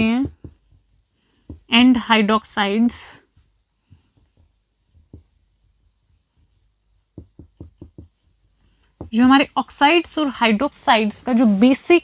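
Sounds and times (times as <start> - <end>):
marker pen writing on whiteboard: 0.0 - 1.9, 3.3 - 10.2.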